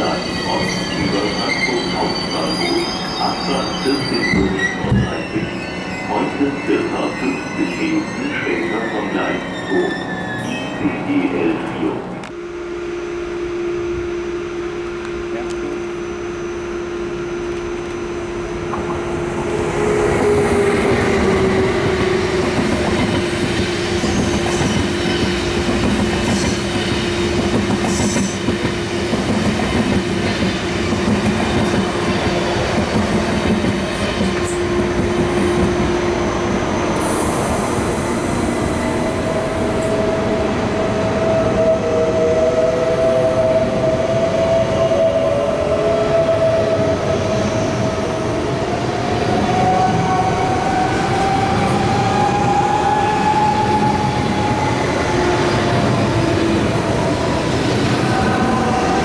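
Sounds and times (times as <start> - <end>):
train wheels clattering on rails: 20.2 - 35.9.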